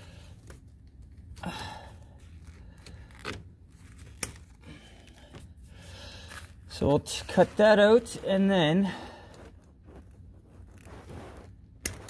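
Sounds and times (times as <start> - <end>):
gloved hands rustling wiring: 0.0 - 12.0.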